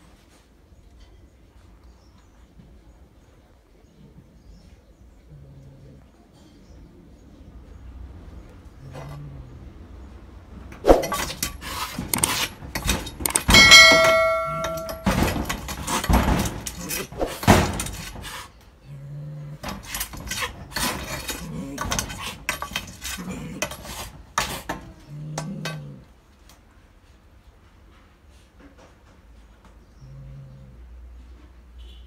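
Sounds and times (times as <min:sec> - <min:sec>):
metallic clang: 0:10.8 - 0:18.1
stick knocking and scraping: 0:10.8 - 0:18.1.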